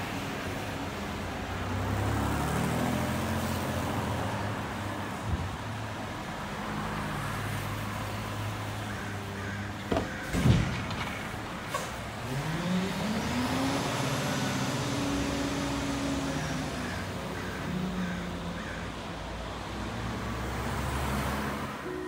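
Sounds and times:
garbage truck engine revving: 0:11.0 - 0:18.0.

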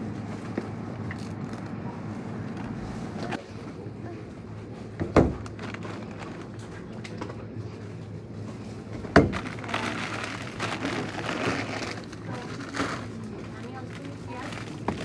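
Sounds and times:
plastic bag crinkling: 0:05.4 - 0:06.6, 0:09.3 - 0:15.0.

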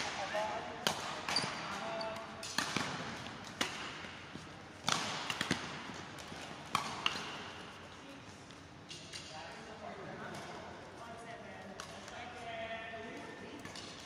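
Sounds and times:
rackets hitting shuttlecock: 0:00.0 - 0:07.8.

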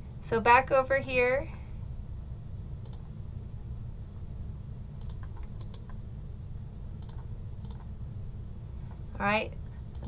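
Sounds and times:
steady low hum: 0:00.0 - 0:10.0
computer mouse clicking: 0:02.8 - 0:03.1, 0:05.0 - 0:06.0, 0:07.0 - 0:07.9.

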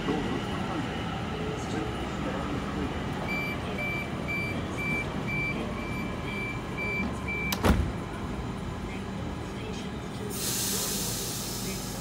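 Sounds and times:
train hum: 0:00.0 - 0:12.0
short high warning beeps: 0:03.3 - 0:07.6
doors sliding shut: 0:07.5 - 0:08.0.

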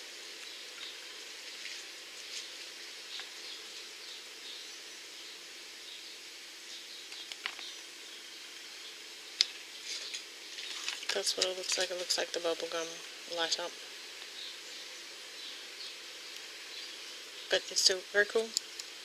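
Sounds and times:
faint steady hum: 0:00.0 - 0:19.0
paper rustling: 0:09.8 - 0:12.0.

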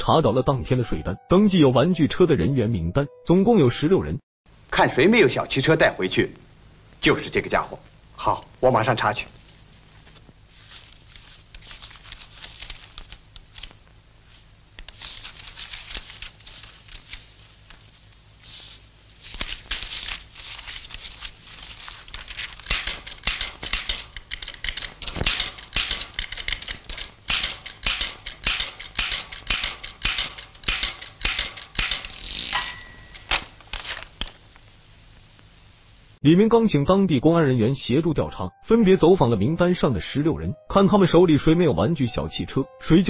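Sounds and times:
typewriter keys clattering: 0:22.0 - 0:34.3
short ringing tone: 0:23.8 - 0:25.7, 0:32.5 - 0:34.6.

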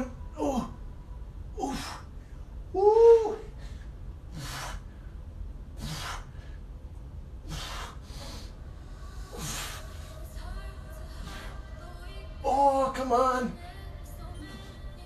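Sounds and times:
man breathing hard: 0:01.6 - 0:06.8, 0:07.4 - 0:10.2.

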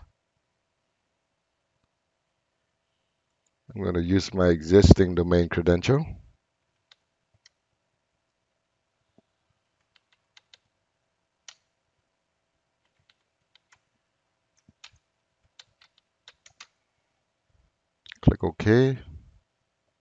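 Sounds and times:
keyboard key clicks: 0:09.8 - 0:10.7, 0:12.8 - 0:13.8, 0:14.6 - 0:16.8.

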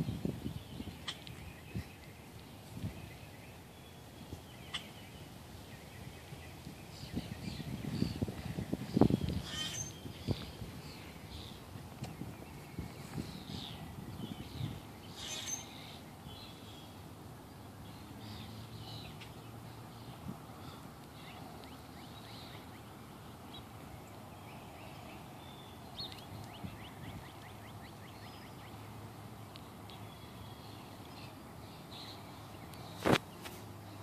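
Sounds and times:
birds chirping: 0:00.0 - 0:34.0
bird trill: 0:03.1 - 0:05.2, 0:09.0 - 0:11.6, 0:13.4 - 0:17.0.

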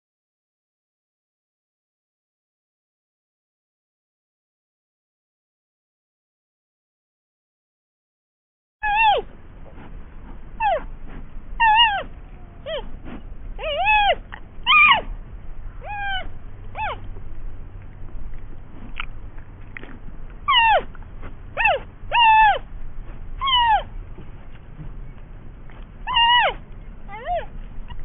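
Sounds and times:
animal high descending calls: 0:08.8 - 0:09.3, 0:10.6 - 0:10.9, 0:11.6 - 0:13.0, 0:13.6 - 0:15.1, 0:15.8 - 0:17.1, 0:20.5 - 0:20.9, 0:21.6 - 0:22.7, 0:23.4 - 0:23.9, 0:26.0 - 0:28.0.

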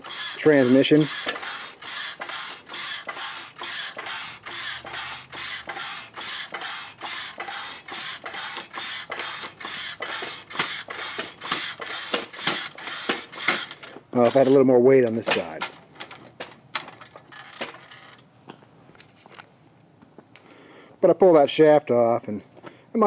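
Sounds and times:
floor jack pumping clicks: 0:00.0 - 0:18.2.

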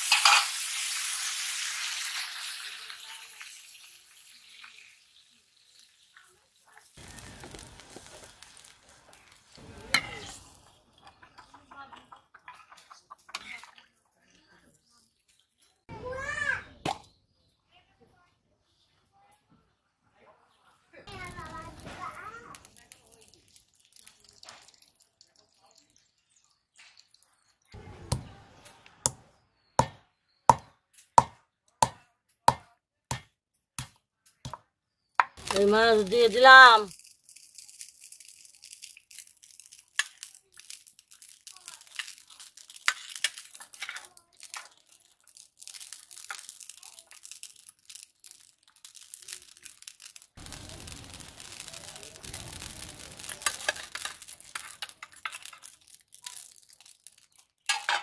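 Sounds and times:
curry boiling with bubbles popping: 0:00.0 - 0:12.3, 0:21.1 - 0:27.9, 0:36.9 - 0:57.8
paper packet rustling: 0:07.0 - 0:09.6, 0:35.4 - 0:57.7.

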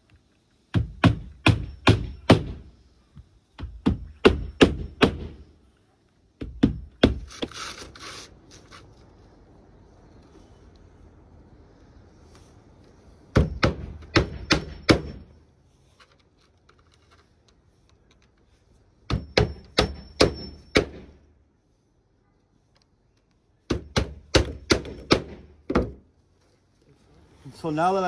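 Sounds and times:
hatchet hammering nails: 0:00.7 - 0:02.7, 0:03.6 - 0:05.4, 0:06.4 - 0:07.5, 0:13.3 - 0:15.3, 0:19.1 - 0:21.2, 0:23.7 - 0:26.0.

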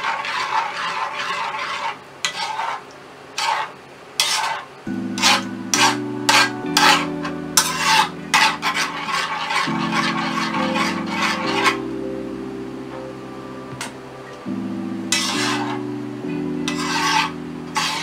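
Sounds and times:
spoon scraping metal pan: 0:00.0 - 0:02.8, 0:03.4 - 0:11.9, 0:15.1 - 0:15.9, 0:16.6 - 0:18.0
soft background music: 0:04.9 - 0:18.0.

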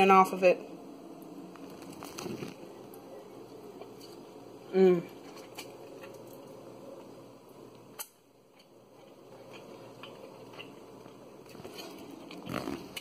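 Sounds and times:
person chewing: 0:01.6 - 0:02.8, 0:05.1 - 0:07.1, 0:07.7 - 0:13.0.

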